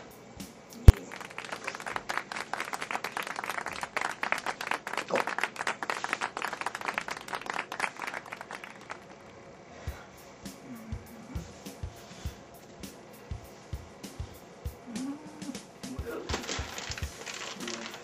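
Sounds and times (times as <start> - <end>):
crowd applauding: 1.0 - 9.2.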